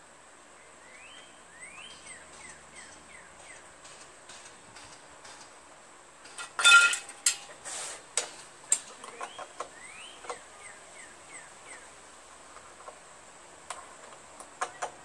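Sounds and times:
birds chirping: 0.5s - 4.0s, 8.7s - 12.3s
metal tools clinking and rattling: 6.2s - 7.6s.

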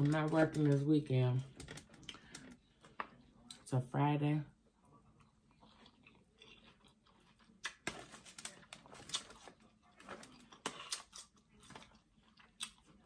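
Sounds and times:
chewing and lip-smacking: 5.1s - 13.0s.

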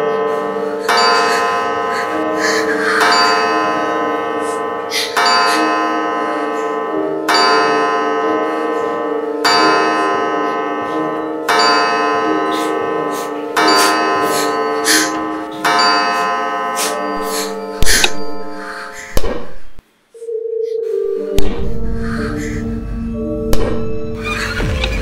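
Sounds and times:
deep bell chime: 0.0s - 19.0s, 20.2s - 24.8s.

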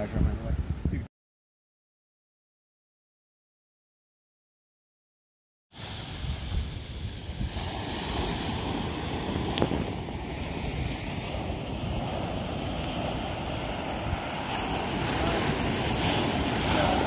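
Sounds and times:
wind buffeting microphone: 0.0s - 1.1s, 5.8s - 17.0s
ocean surf washing on beach: 5.8s - 17.0s.

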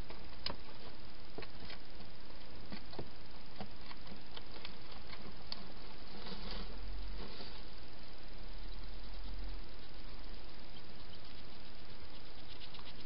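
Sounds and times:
microphone hiss: 0.0s - 13.0s
hedgehog clicks and crackles: 2.7s - 5.8s, 8.6s - 13.0s.

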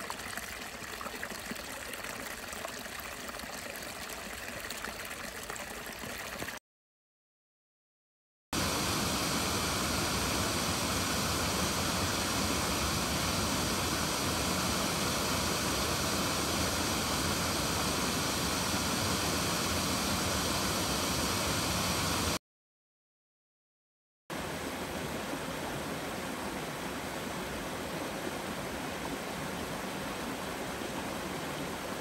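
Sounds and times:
waterfall rushing: 8.6s - 22.4s.

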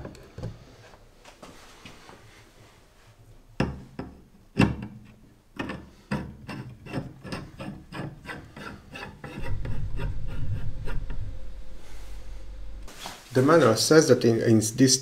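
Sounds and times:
loud low steady hum: 9.4s - 13.2s.

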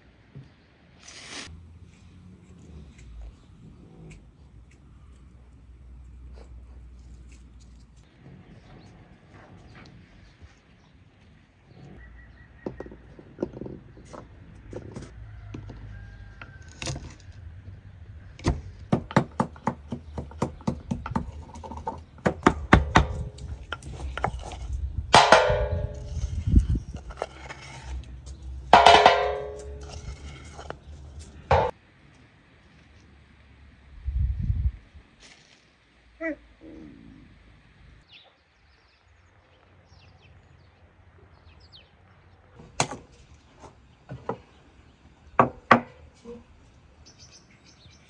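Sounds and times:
pestle pounding in wooden mortar: 18.9s - 24.5s
mortar knocking on metal tray: 25.2s - 26.2s, 28.8s - 30.0s, 31.5s - 31.7s.

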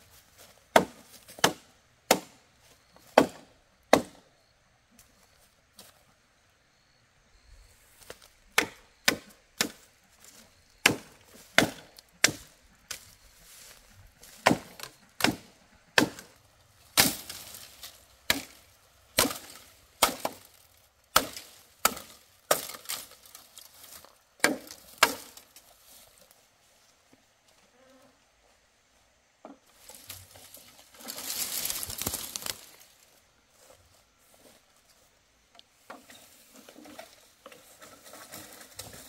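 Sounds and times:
blade chopping into wood: 0.7s - 2.4s, 10.8s - 12.5s, 14.4s - 16.3s, 17.0s - 17.5s, 19.2s - 20.5s, 21.1s - 23.0s, 24.4s - 25.4s.

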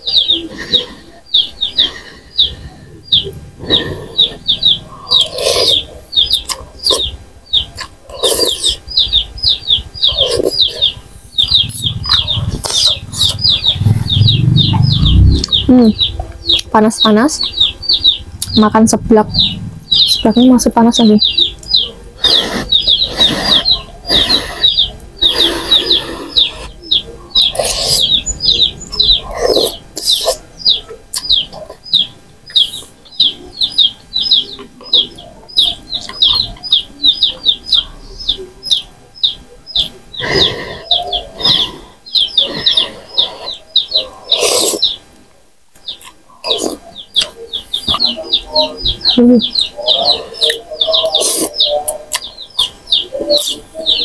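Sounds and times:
bird chirping: 0.0s - 45.1s, 45.7s - 54.0s.

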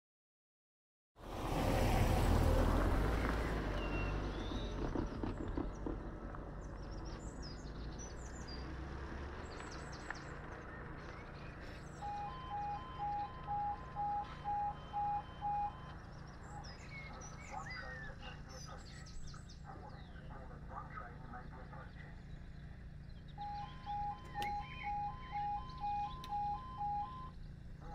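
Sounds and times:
birds chirping: 3.0s - 27.9s
level crossing alarms beeping: 12.0s - 17.6s, 23.3s - 27.4s.

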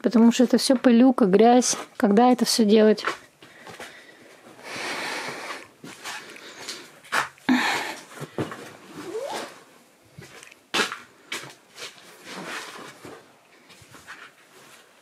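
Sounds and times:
rustling cloth: 8.1s - 15.0s.

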